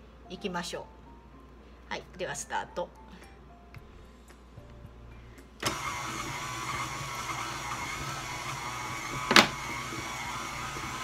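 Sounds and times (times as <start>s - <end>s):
stand mixer motor running: 5.6s - 11.0s.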